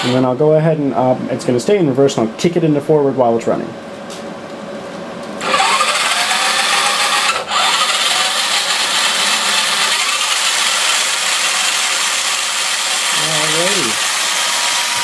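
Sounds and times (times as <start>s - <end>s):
electric motor and gears whining: 5.4s - 15.0s.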